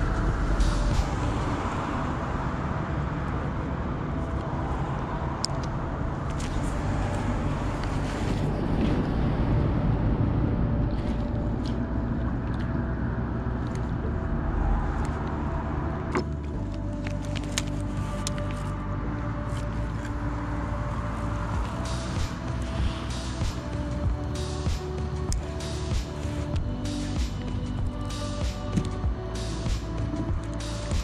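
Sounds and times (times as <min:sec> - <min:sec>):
road traffic rumbling: 0:00.0 - 0:31.0.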